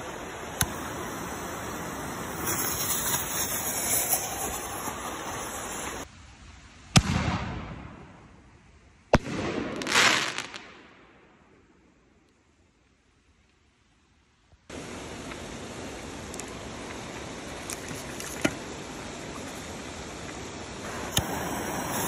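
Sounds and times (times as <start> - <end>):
fuse hissing and sputtering: 0.0 - 6.1, 14.7 - 22.0.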